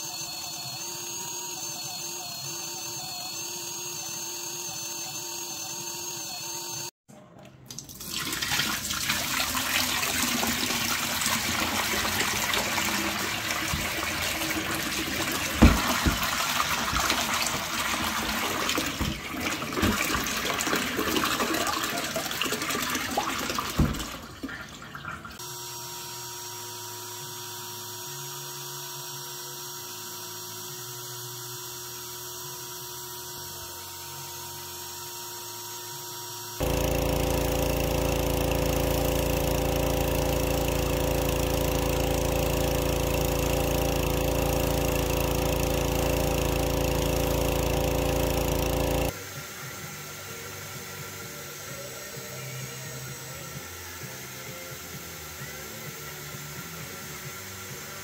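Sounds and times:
carpet extractor motor whine: 0.0s - 7.0s, 10.5s - 19.2s, 25.4s - 49.3s.

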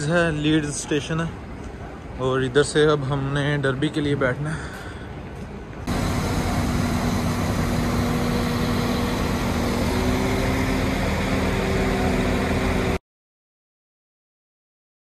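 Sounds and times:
train engine hum: 4.4s - 13.0s.

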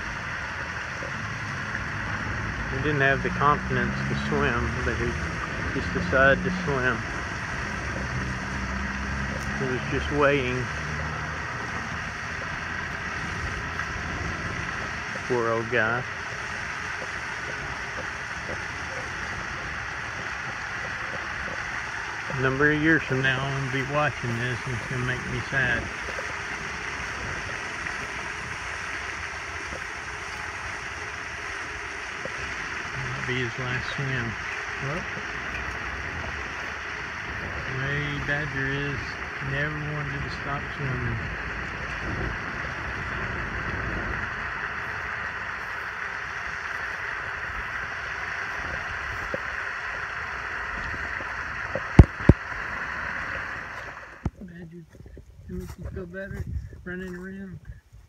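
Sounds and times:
fountain spray rushing: 0.0s - 57.5s
wind noise on microphone: 3.8s - 30.9s, 32.2s - 49.6s, 50.6s - 58.0s.

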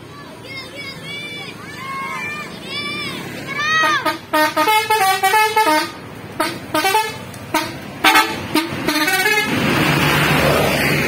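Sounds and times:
bus engine and road noise: 0.0s - 11.0s
multi-tone bus horn tune: 3.7s - 9.8s.

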